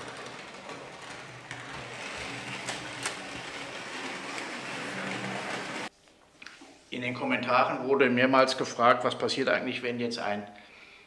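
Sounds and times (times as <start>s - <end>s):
model train motor whirring: 0.0s - 5.9s.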